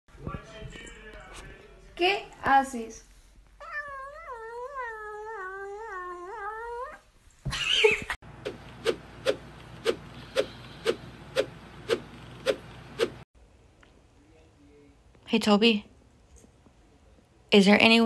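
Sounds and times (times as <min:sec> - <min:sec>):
cat crying: 0:03.6 - 0:07.0
cat meowing: 0:03.6 - 0:07.0.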